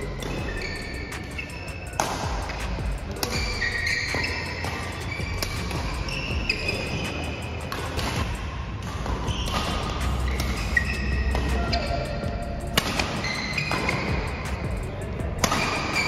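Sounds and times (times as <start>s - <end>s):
background music with a beat: 0.0s - 16.0s.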